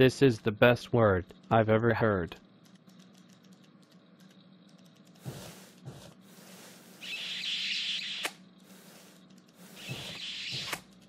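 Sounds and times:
soft keyboard clicks: 0:02.6 - 0:05.2.

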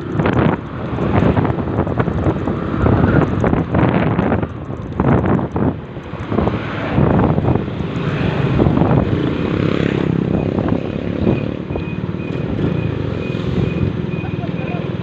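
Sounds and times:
wind rush on microphone: 0:00.0 - 0:14.2
motorcycle engine running: 0:00.0 - 0:15.0
faint high beep: 0:11.2 - 0:15.0.

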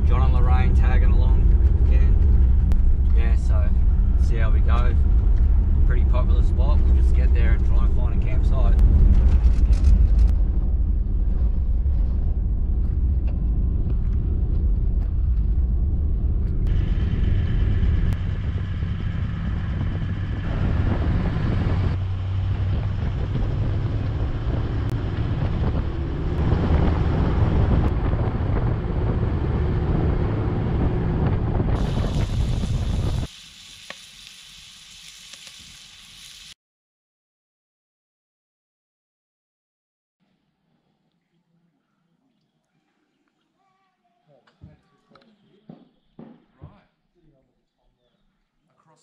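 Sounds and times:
vehicle engine and tyre rumble: 0:00.0 - 0:33.3
wind: 0:00.0 - 0:36.6.

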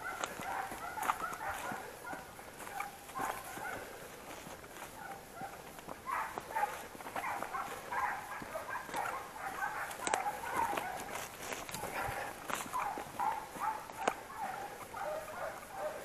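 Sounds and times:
footsteps crunching dry grass: 0:00.0 - 0:16.0
hounds baying: 0:00.0 - 0:16.0.

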